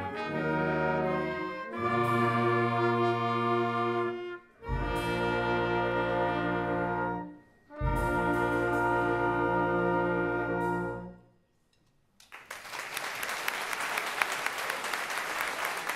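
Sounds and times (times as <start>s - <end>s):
applause: 12.2s - 15.9s.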